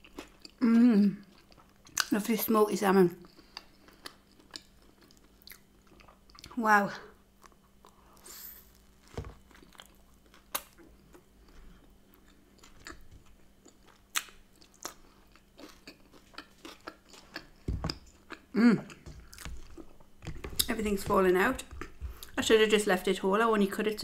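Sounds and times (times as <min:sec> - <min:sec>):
person chewing: 0:00.0 - 0:02.1, 0:03.2 - 0:06.6, 0:07.3 - 0:20.8.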